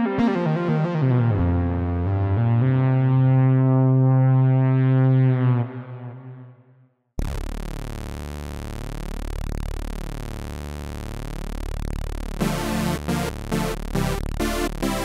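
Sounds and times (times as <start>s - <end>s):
detuned saw synth note: 7.2s - 15.0s.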